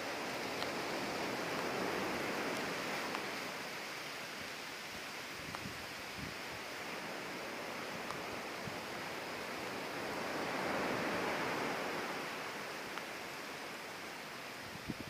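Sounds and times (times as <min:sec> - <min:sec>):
faint ticks: 0:00.1 - 0:06.3, 0:07.9 - 0:09.0, 0:12.8 - 0:14.2.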